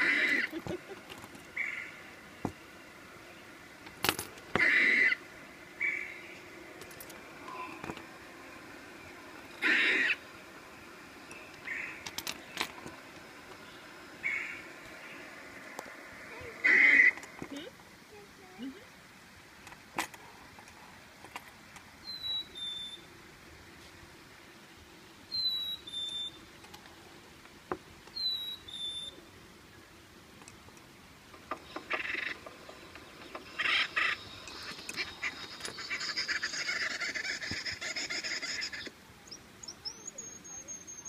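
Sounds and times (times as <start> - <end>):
raspy animal call: 0.0 - 0.8, 4.5 - 6.2, 9.6 - 10.2, 14.2 - 14.7, 16.3 - 17.6, 31.8 - 32.4, 33.4 - 38.9.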